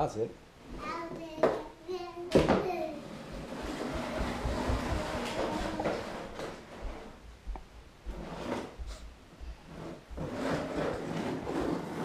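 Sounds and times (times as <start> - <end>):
plastic chair scraping on wooden floor: 2.3 - 7.2, 8.1 - 9.0, 9.7 - 12.0
soft footsteps: 3.2 - 10.4.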